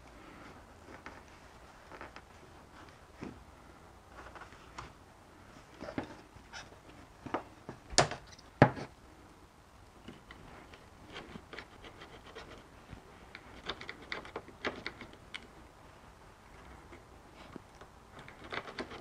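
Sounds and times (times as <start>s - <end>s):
light clicking and scraping: 5.7s - 15.7s.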